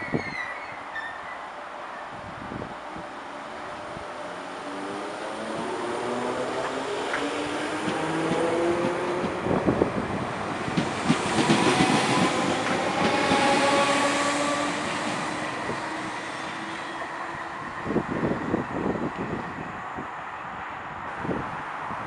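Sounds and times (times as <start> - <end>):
train wheels knocking over rail joints: 6.6 - 9.6, 10.7 - 13.8.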